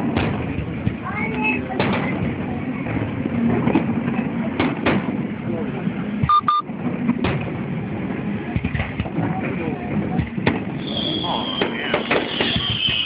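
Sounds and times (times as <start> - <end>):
crowd chatter: 0.0 - 13.0
short high beeps: 6.3 - 6.6
fireworks bursting: 10.4 - 13.0.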